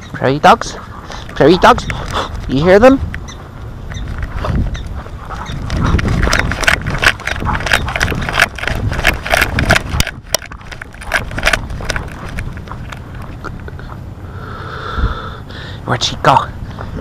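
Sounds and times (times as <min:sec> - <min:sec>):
hurried footsteps: 0:00.0 - 0:14.1
wind rumble on microphone: 0:00.0 - 0:17.0
camera knocking: 0:05.4 - 0:13.4.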